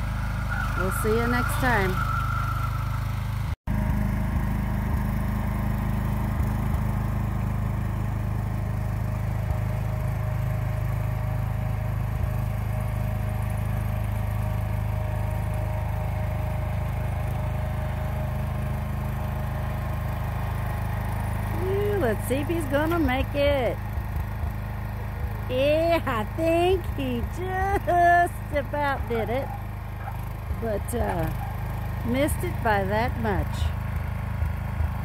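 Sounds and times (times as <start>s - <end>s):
garden tractor engine running: 0.0s - 35.0s.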